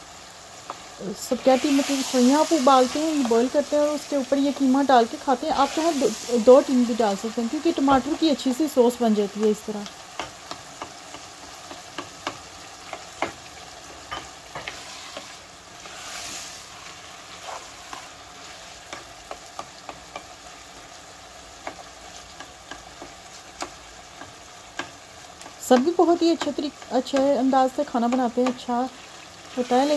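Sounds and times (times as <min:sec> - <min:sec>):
meat and tomatoes sizzling in pan: 0:00.0 - 0:29.9
spatula scraping against pan: 0:14.0 - 0:20.3.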